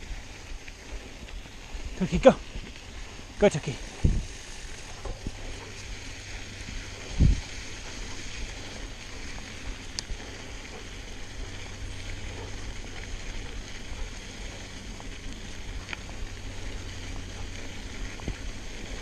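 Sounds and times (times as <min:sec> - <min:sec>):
tyres rolling on dirt and gravel: 0:00.0 - 0:19.0
wind rumbling on microphone: 0:00.0 - 0:19.0
faint clicks: 0:09.9 - 0:10.9.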